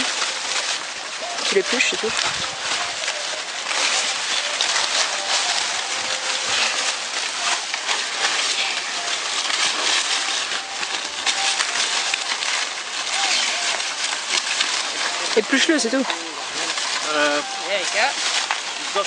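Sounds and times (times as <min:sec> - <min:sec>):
dry corn stalks rustling: 0:00.0 - 0:19.0.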